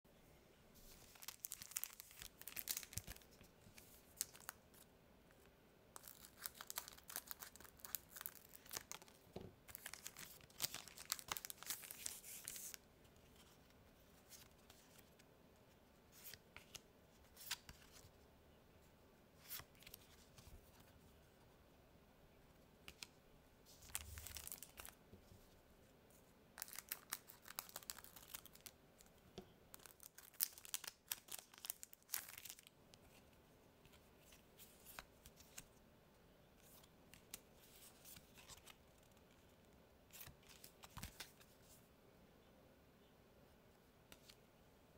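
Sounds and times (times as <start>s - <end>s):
foil wrappers crinkling and tearing: 1.1s - 3.3s, 29.8s - 32.7s.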